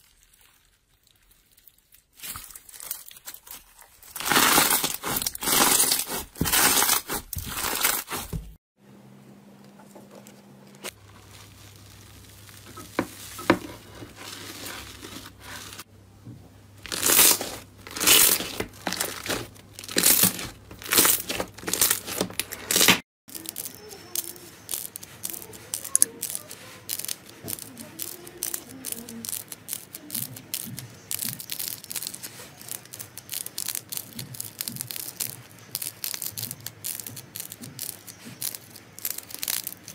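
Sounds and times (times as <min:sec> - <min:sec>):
slime crackling and squishing: 0:00.0 - 0:08.6, 0:10.8 - 0:15.9, 0:16.8 - 0:39.9.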